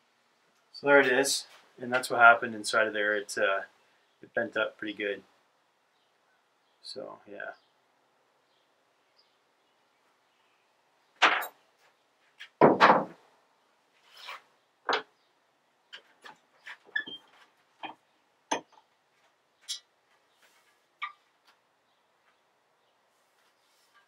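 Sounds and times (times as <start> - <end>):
tools knocking on wooden workbench: 12.6 - 13.2.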